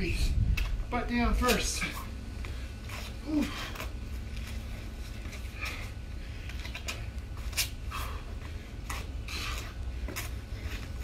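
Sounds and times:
wind rumble on microphone: 0:00.0 - 0:01.5.

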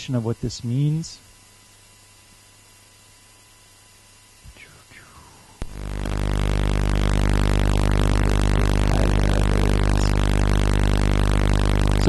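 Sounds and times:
oscillator buzzing over loudspeakers: 0:05.0 - 0:12.0.

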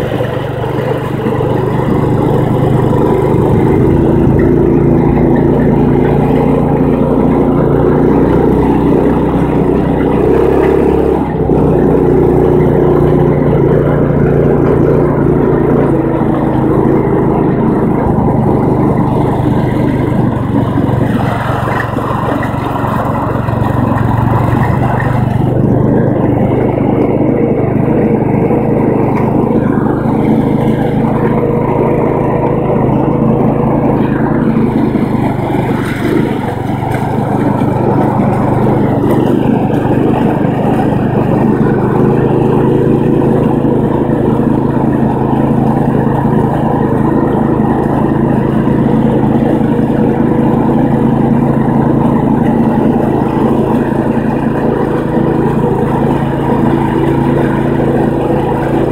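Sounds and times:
vehicle engine running: 0:00.0 - 0:58.9.

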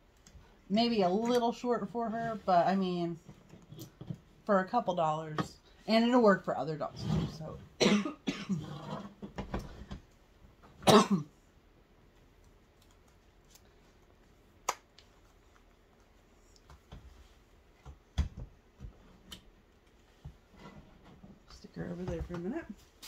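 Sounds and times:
person coughing: 0:07.8 - 0:08.8, 0:10.8 - 0:11.4.

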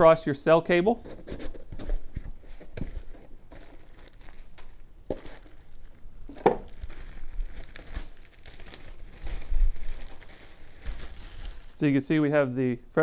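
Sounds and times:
plastic bags crinkling: 0:01.0 - 0:12.2.

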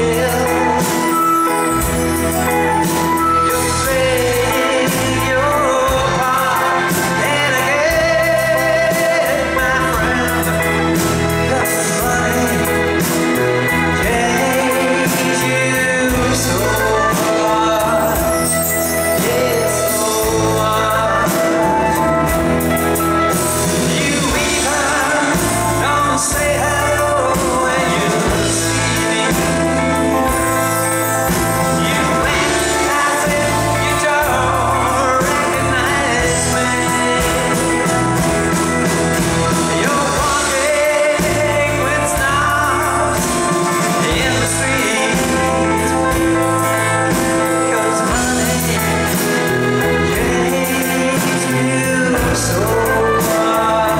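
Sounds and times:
live pop-rock band: 0:00.0 - 0:53.9
man singing: 0:00.0 - 0:53.9.

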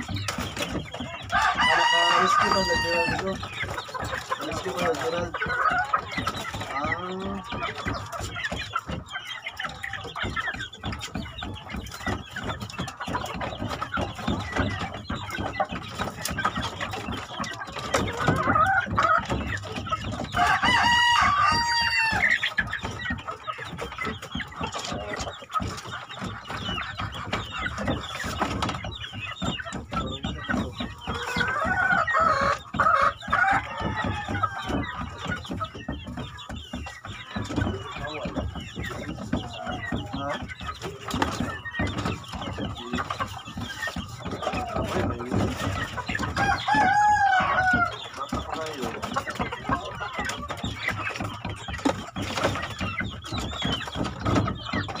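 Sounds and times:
chickens clucking: 0:00.0 - 0:55.0
rooster crowing: 0:01.3 - 0:03.3, 0:20.4 - 0:22.2, 0:46.4 - 0:47.9.

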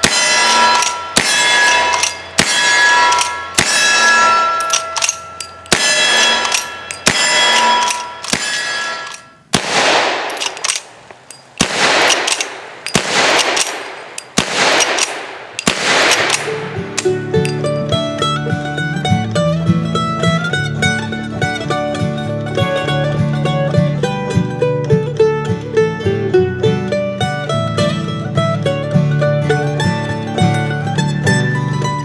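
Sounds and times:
rifle shots echoing: 0:00.0 - 0:17.9
steel target clanging: 0:00.0 - 0:18.2.

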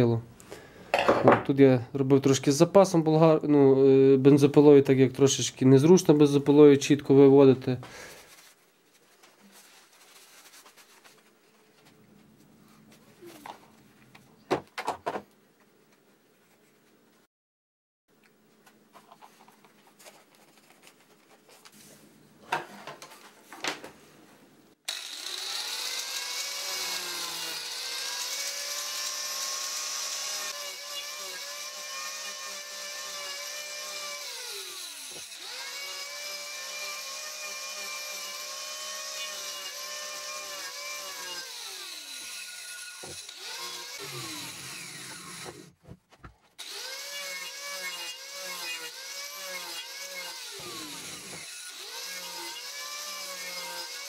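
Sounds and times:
angle grinder cutting wood: 0:24.9 - 0:45.8, 0:46.6 - 0:54.0.

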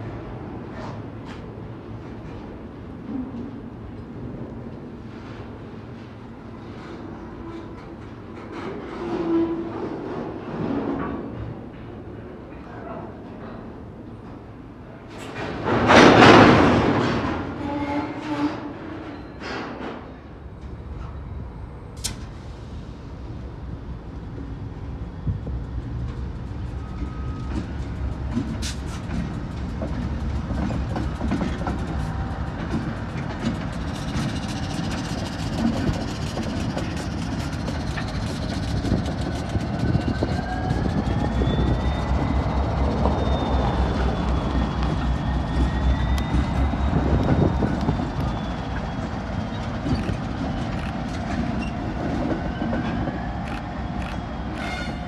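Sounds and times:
diesel locomotive rumble: 0:21.1 - 0:55.0
wheels clicking over rail joints: 0:27.4 - 0:41.2.

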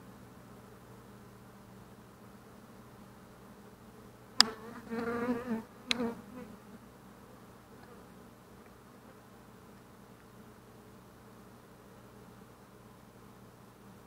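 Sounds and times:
bee buzzing: 0:04.4 - 0:06.9.

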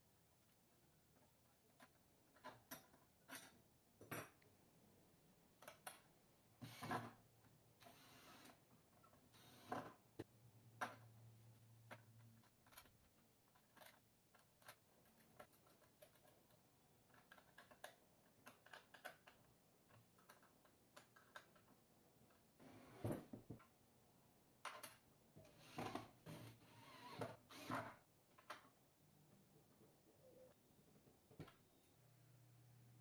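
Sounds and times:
small tools clicking and tapping: 0:11.8 - 0:22.5.

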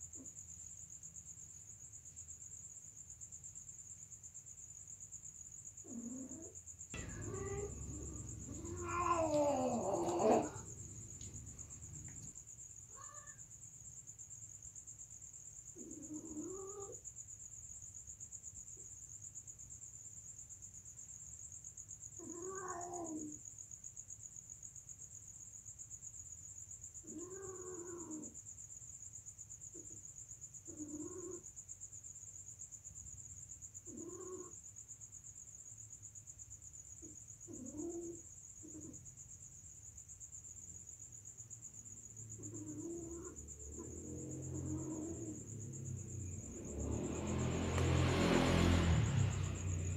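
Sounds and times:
cats yowling: 0:05.9 - 0:13.4, 0:15.8 - 0:17.0, 0:22.2 - 0:23.3, 0:27.0 - 0:28.4, 0:30.7 - 0:31.4, 0:33.9 - 0:34.6, 0:37.5 - 0:39.0, 0:42.4 - 0:47.0.

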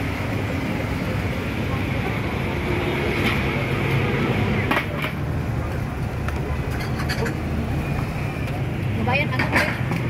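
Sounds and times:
crowd chatter: 0:00.0 - 0:10.0
traffic hum: 0:00.0 - 0:10.0
bowls and utensils clinking: 0:06.7 - 0:07.4.

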